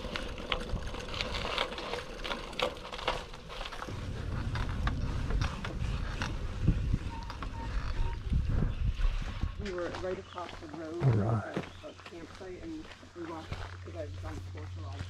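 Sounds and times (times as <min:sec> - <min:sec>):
bicycle rattling over pavement: 0:00.0 - 0:15.0
tyres rumbling on wooden boardwalk: 0:00.0 - 0:15.0.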